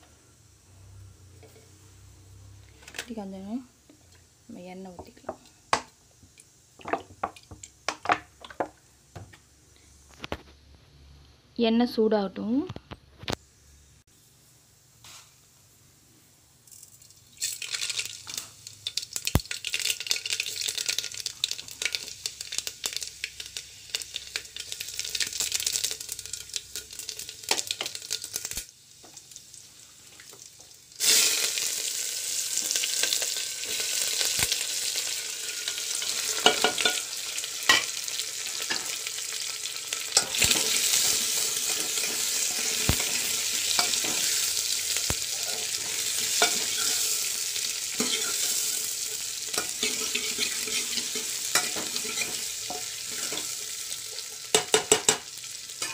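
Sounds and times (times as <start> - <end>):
vegetables sizzling in oil: 0.0 - 9.3, 13.4 - 15.9, 16.6 - 55.9
seeds crackling and popping in oil: 3.9 - 8.8, 16.6 - 55.9.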